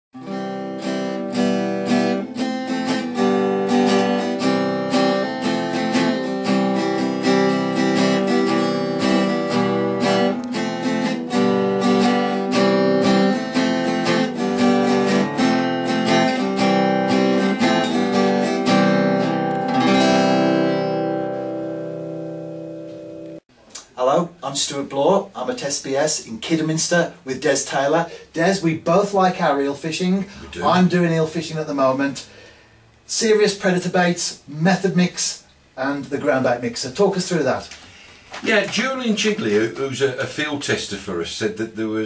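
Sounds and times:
strummed acoustic guitar: 0.2s - 23.4s.

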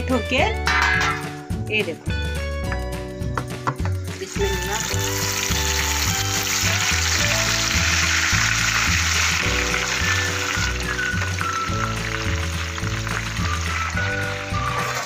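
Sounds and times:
chicken sizzling in hot oil: 4.1s - 15.0s.

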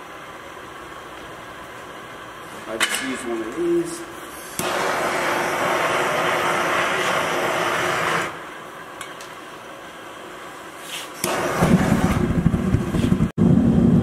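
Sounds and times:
gas burner low rumble: 0.0s - 14.0s
gas torch hissing: 3.6s - 8.9s, 10.5s - 13.3s.

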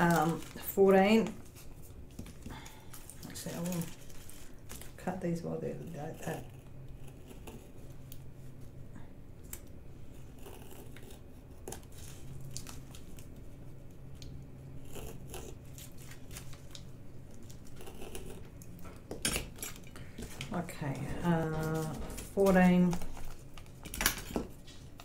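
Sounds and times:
plastic rustling: 0.0s - 5.1s, 11.8s - 14.4s, 15.6s - 17.8s, 19.6s - 25.0s.

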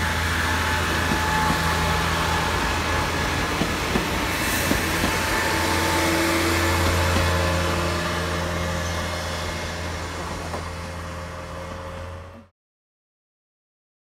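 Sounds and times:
diesel railcar engine hum: 0.0s - 12.5s
train wheels clicking: 0.4s - 7.8s.

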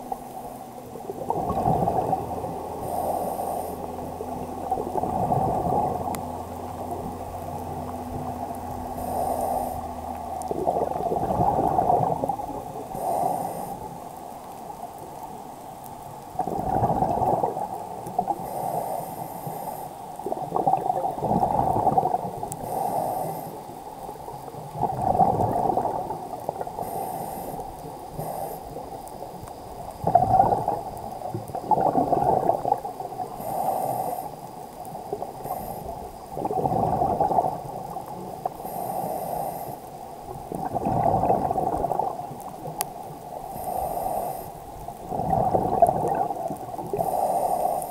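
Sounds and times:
exhaled bubbles rushing underwater: 0.0s - 13.9s, 16.1s - 18.4s, 20.2s - 26.8s, 27.9s - 38.6s, 40.2s - 47.9s
regulator inhalation hiss: 9.0s - 9.9s, 13.0s - 14.0s, 22.6s - 23.7s, 26.8s - 29.2s, 33.3s - 34.4s, 35.4s - 36.1s, 38.6s - 39.9s, 43.5s - 44.6s, 46.9s - 47.9s.

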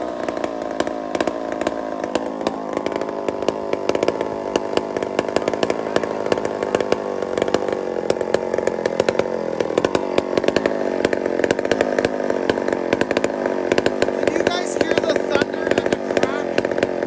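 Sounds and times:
chainsaw running: 0.0s - 17.0s.

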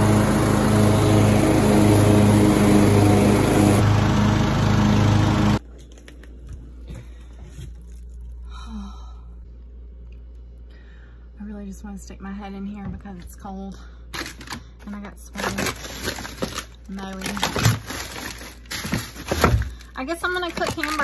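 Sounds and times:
lawn mower engine running: 0.0s - 5.6s.

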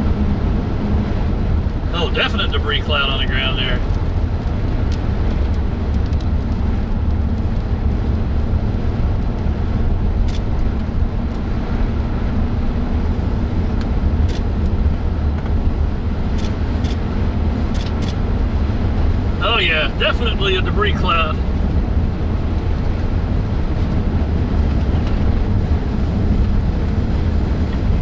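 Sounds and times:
wind buffeting microphone: 21.4s - 28.0s.

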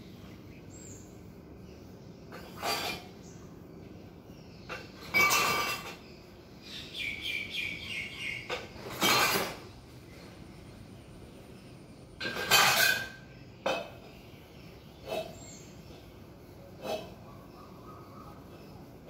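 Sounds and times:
bird chirps: 0.0s - 8.9s, 13.2s - 19.0s
dishes clattering: 2.3s - 3.2s, 4.7s - 6.1s, 8.4s - 9.7s, 12.2s - 14.2s.

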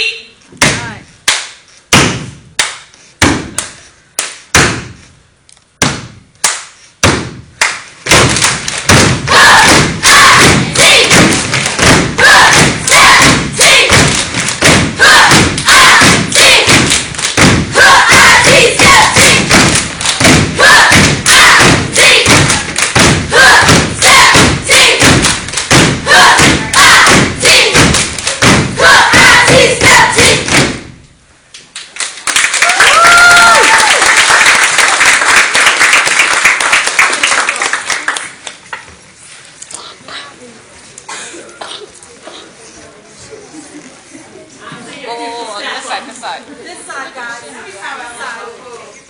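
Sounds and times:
group stomping on hard floor: 8.1s - 30.9s.

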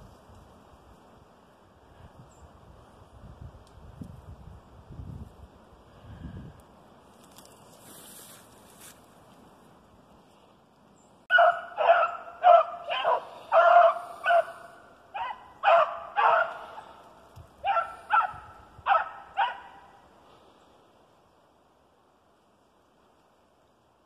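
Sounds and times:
hound barking: 11.3s - 17.0s, 17.6s - 20.0s.

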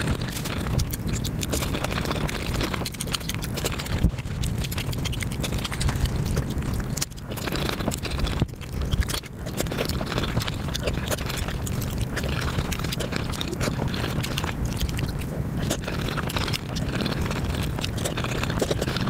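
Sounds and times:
sped-up eating sounds: 0.0s - 19.0s.

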